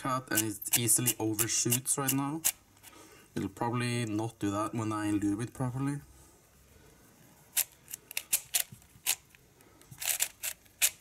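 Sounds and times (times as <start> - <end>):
plastic puzzle cube clicking: 7.6 - 11.0.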